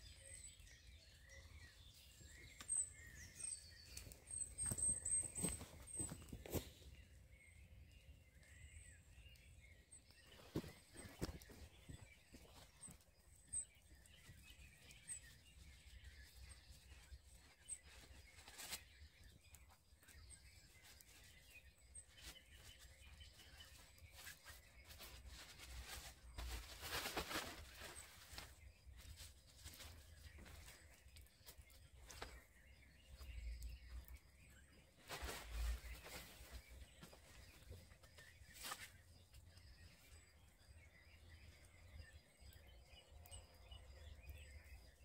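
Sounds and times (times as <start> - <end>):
birds chirping: 0.0 - 45.0
nylon poncho rustling: 24.2 - 28.6.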